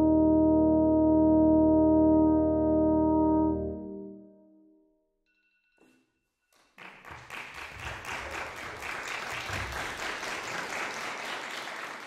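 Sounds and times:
audience applauding: 6.5s - 12.0s.

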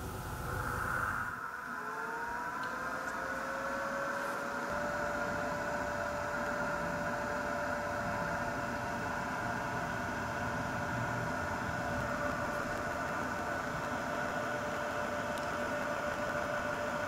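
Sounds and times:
fan whine: 0.0s - 17.0s
hot-air blower rushing: 0.0s - 17.0s.

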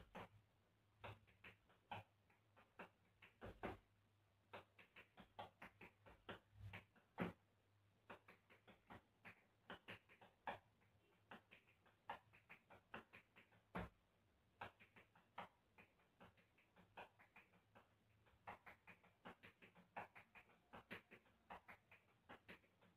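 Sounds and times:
tap shoes on tiled floor: 2.8s - 3.8s, 4.6s - 7.4s, 12.1s - 14.0s.

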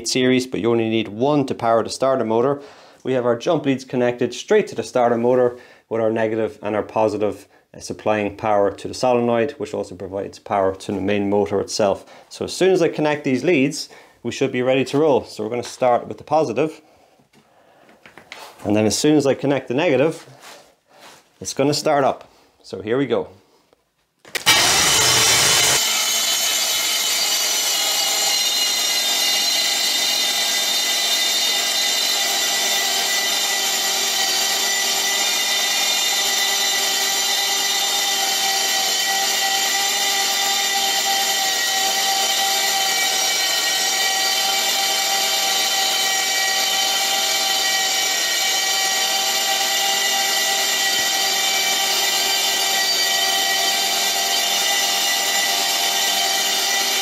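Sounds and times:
starter motor cranking engine: 24.3s - 27.4s.

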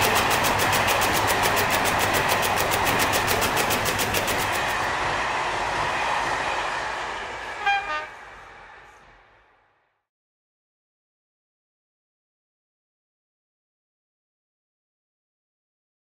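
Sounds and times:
steady rushing noise: 0.0s - 10.0s.

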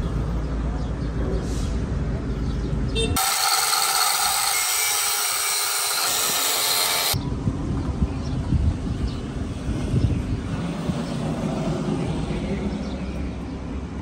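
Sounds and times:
angle grinder grinding steel: 3.2s - 7.2s.

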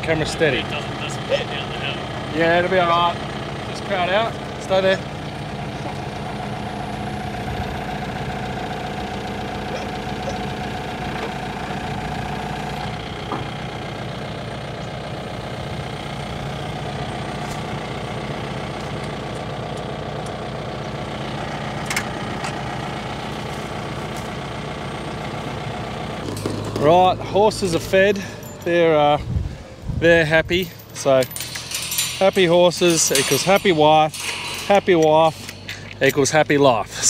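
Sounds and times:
diesel engine idling: 0.0s - 37.0s.

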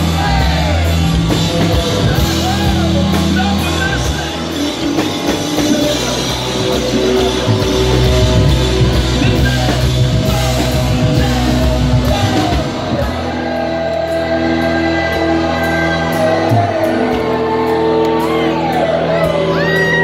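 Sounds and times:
drums: 0.0s - 20.0s
live band playing loud: 0.0s - 20.0s
person singing and shouting: 0.0s - 20.0s.

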